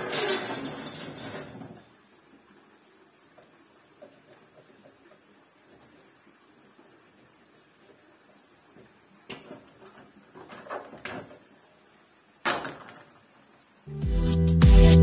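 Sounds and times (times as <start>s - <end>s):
loud music with steady beat: 13.9s - 15.0s.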